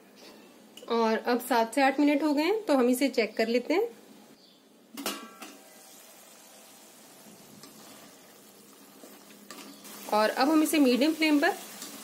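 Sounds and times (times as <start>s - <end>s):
metal lid clanking: 5.0s - 5.7s
faint sizzle of simmering food: 5.4s - 12.0s.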